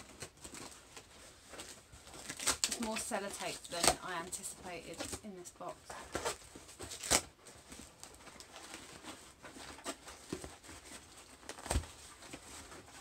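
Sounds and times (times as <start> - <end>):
tape peeling off cardboard: 0.0 - 3.0, 6.2 - 7.3, 8.3 - 12.5
cardboard flaps rustling: 0.0 - 13.0.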